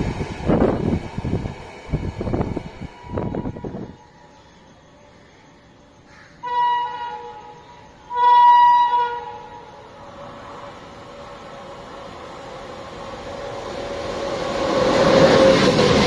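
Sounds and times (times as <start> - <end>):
train rumble: 0.0 - 16.0
locomotive horn blasts: 6.4 - 9.8.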